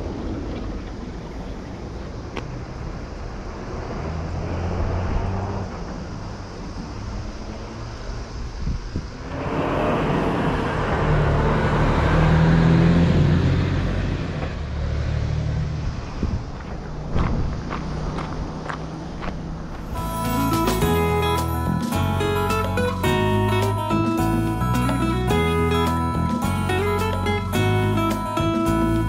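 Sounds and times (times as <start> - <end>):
road vehicle passing: 0.0 - 29.0.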